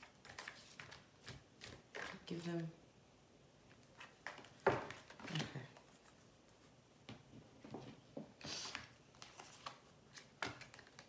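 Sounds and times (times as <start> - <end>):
cards being shuffled: 0.0 - 2.4, 8.5 - 11.0.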